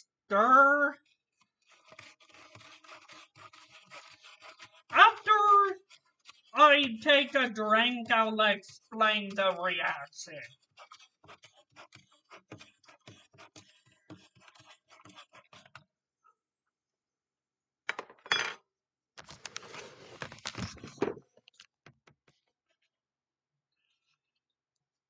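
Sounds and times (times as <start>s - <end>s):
spoon stirring in foam cup: 0.4s - 15.9s.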